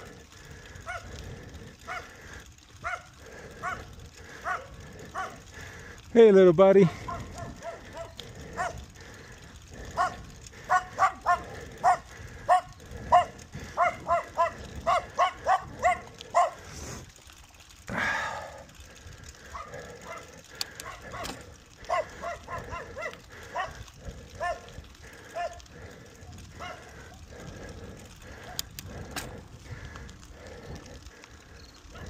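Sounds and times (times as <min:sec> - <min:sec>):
dog barking: 0:00.8 - 0:01.1, 0:01.8 - 0:02.1, 0:02.8 - 0:05.4, 0:06.9 - 0:08.8, 0:10.0 - 0:16.6, 0:19.5 - 0:23.8, 0:24.4 - 0:24.7, 0:25.3 - 0:25.6, 0:26.6 - 0:26.9.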